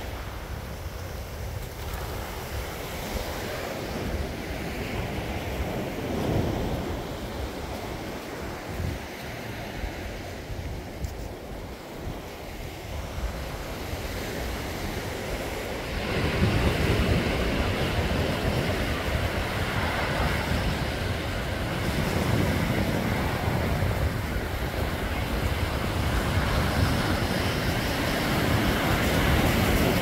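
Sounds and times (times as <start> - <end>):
surf breaking on beach: 0.0 - 30.0
wind buffeting microphone: 0.0 - 30.0.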